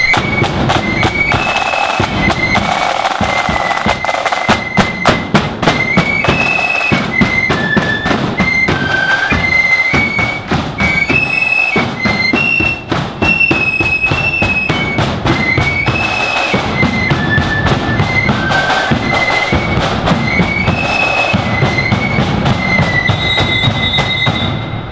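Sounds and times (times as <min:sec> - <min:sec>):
bass drum beating time: 0:00.0 - 0:06.5
flutes playing shrill melody: 0:00.0 - 0:24.9
side drums: 0:00.0 - 0:24.9.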